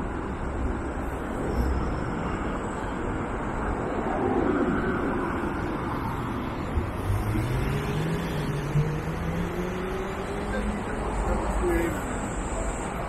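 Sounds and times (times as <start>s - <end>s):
hum of city noise: 0.0s - 13.0s
vehicle engine pulling away: 7.0s - 11.0s.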